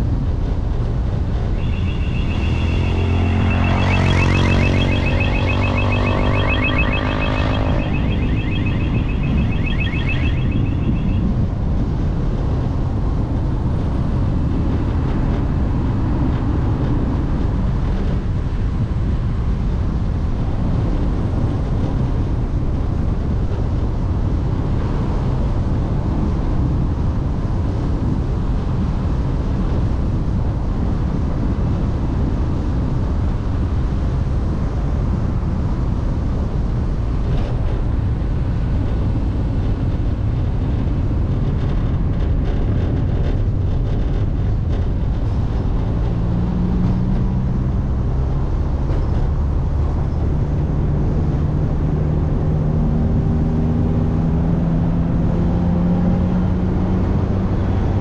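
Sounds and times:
warbling electronic alarm tone: 1.5 - 11.5.

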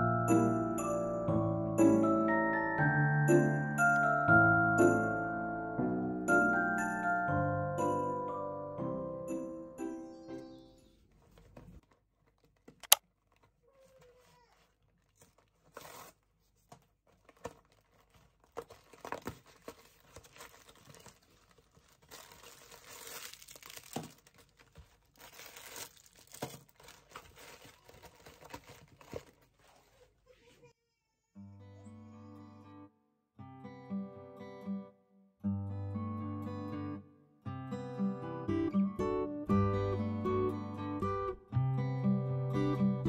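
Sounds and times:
packaging crinkling and rustling: 11.1 - 30.2.

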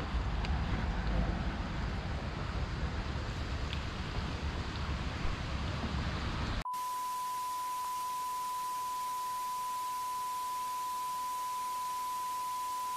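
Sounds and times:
outdoor background noise: 0.0 - 12.9
sine test tone: 6.6 - 12.9.

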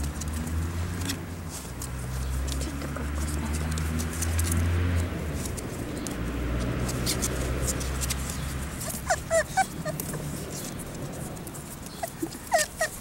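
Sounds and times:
puppies whimpering and squeaking: 6.8 - 13.0.

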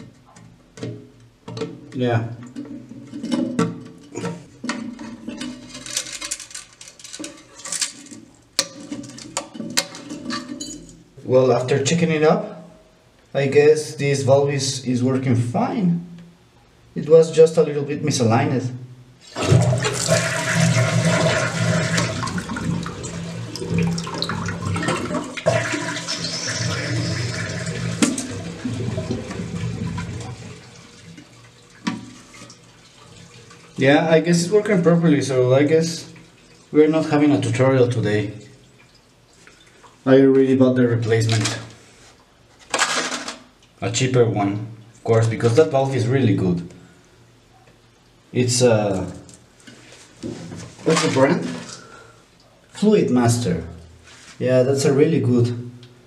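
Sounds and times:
rubbing and scraping in toilet tank: 2.4 - 10.6, 19.2 - 33.8, 49.6 - 51.8.

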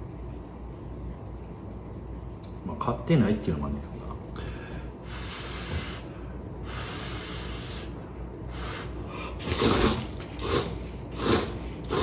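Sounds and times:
person blowing on food: 5.0 - 12.0
slurping noodles: 8.8 - 12.0.

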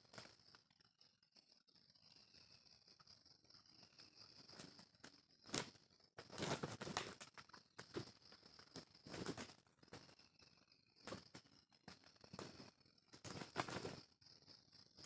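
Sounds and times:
roosters' wings flapping: 5.5 - 10.1, 11.0 - 14.1.

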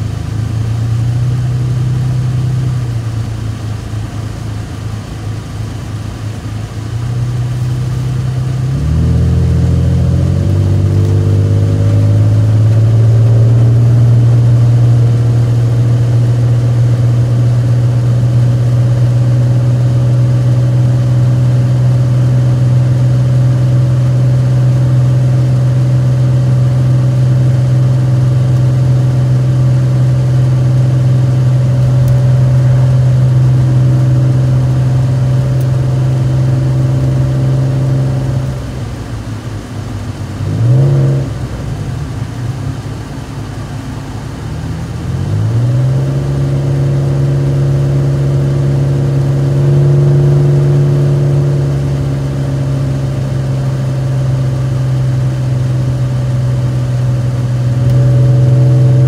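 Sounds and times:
vehicle transmission drone: 0.0 - 59.0.

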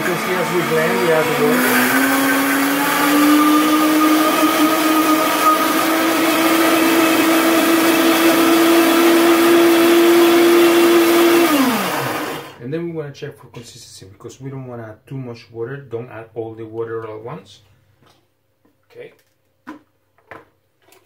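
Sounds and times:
blender motor whine: 0.0 - 12.6.

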